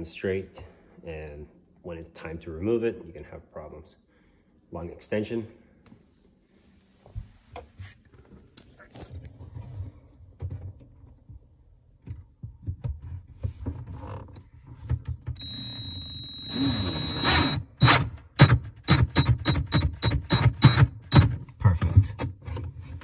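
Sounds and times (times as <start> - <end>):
cordless drill motor whining: 15.4 - 18.0.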